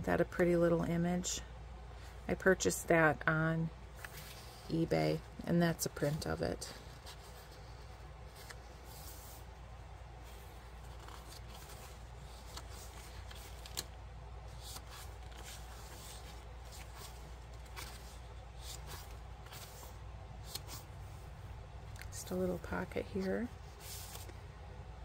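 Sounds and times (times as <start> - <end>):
low steady hum: 0.0 - 25.0
paper pages rustling: 3.9 - 4.9, 6.8 - 9.5, 10.2 - 20.9, 21.9 - 24.4.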